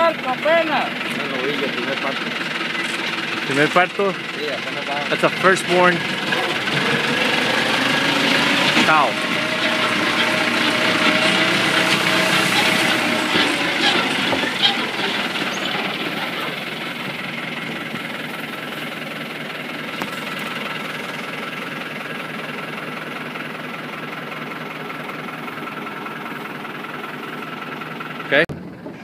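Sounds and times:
tractor engine running: 0:00.0 - 0:29.0.

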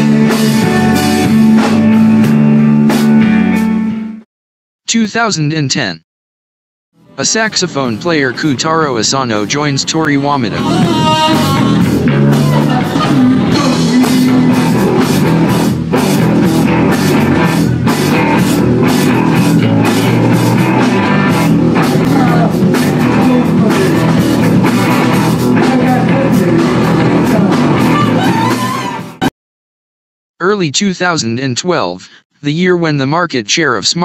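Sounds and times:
drum kit: 0:00.0 - 0:03.8, 0:10.5 - 0:29.3
electric guitar: 0:00.0 - 0:04.0, 0:10.0 - 0:29.3
man singing: 0:10.5 - 0:11.9, 0:12.7 - 0:15.0, 0:22.0 - 0:24.2, 0:25.5 - 0:28.0.

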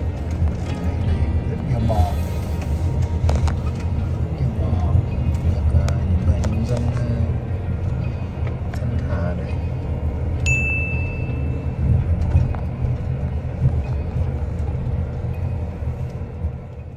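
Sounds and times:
vehicle rumble: 0:00.0 - 0:16.9
bright ding: 0:10.4 - 0:11.6.

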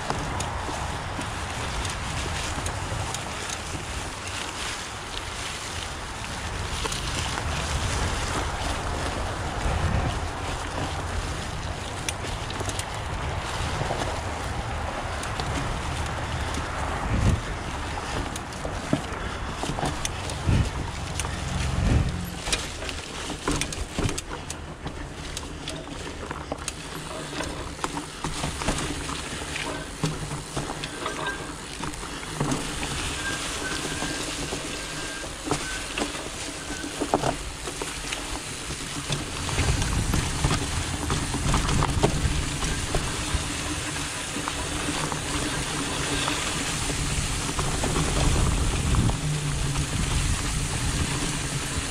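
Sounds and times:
bike knocking and rattling: 0:00.0 - 0:51.9
tyre and air rushing: 0:19.0 - 0:22.6
low rumble: 0:20.2 - 0:22.8.

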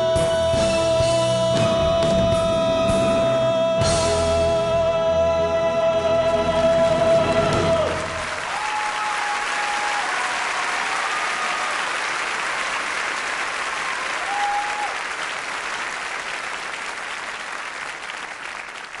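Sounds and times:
audience applauding: 0:06.6 - 0:19.0.

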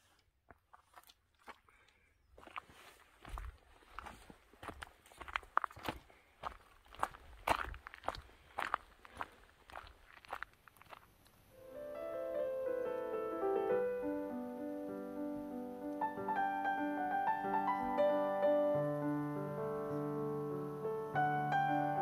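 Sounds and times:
footsteps on gravel: 0:00.0 - 0:11.4
gentle piano music: 0:11.5 - 0:22.0.

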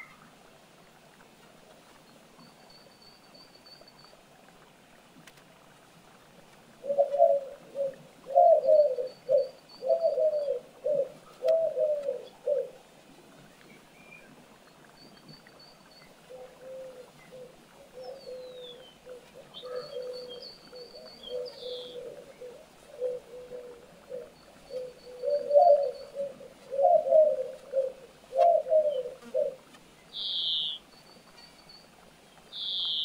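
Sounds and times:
pigeon cooing: 0:06.8 - 0:12.8, 0:16.3 - 0:29.6
small birds chirping and whistling: 0:30.2 - 0:31.8, 0:32.6 - 0:33.0.

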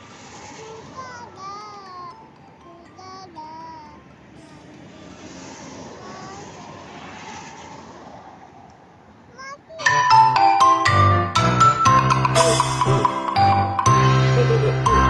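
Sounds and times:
background hiss: 0:00.0 - 0:02.3
child's sing-song voice: 0:00.5 - 0:07.0, 0:09.3 - 0:09.9.

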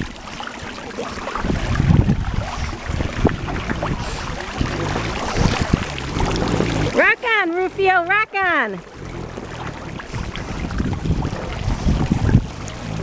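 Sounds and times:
dog paddling in pool water: 0:00.0 - 0:13.0
steady low rumble: 0:01.3 - 0:07.0, 0:08.8 - 0:13.0.

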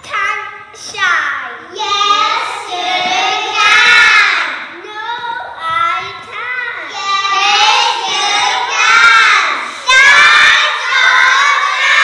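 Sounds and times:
children singing together: 0:01.8 - 0:04.7, 0:06.8 - 0:12.0.

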